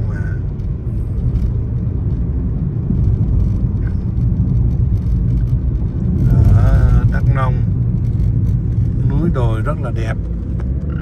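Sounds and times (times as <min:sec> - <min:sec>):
car interior rumble: 0:00.0 - 0:11.0.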